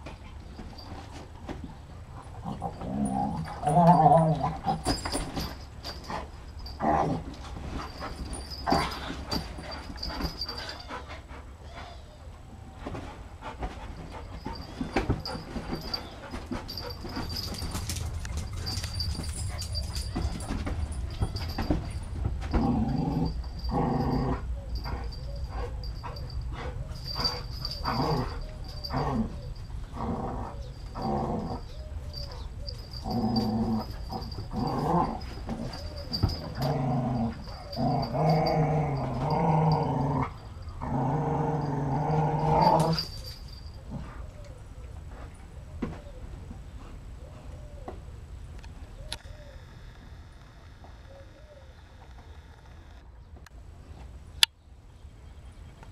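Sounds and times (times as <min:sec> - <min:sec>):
dogs growling and yipping: 0:01.7 - 0:45.3.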